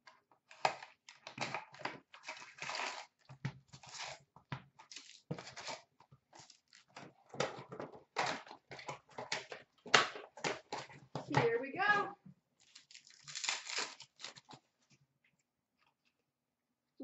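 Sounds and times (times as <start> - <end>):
wrapped packs rustling: 12.6 - 14.7.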